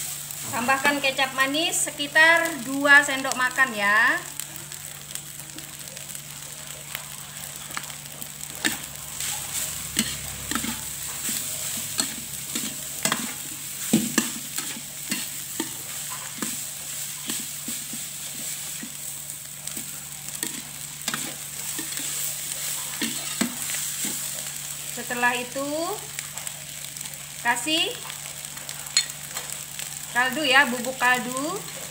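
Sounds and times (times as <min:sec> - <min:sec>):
rice sizzling in a wok: 0:00.0 - 0:31.9
spatula scraping a metal pan: 0:08.6 - 0:19.0, 0:19.8 - 0:24.3.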